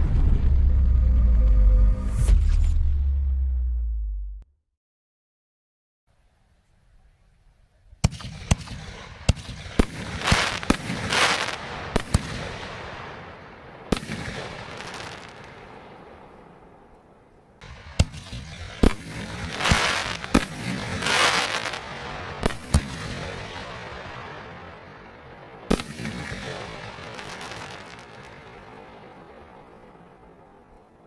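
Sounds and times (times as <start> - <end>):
firework crackling: 8.0 - 31.0.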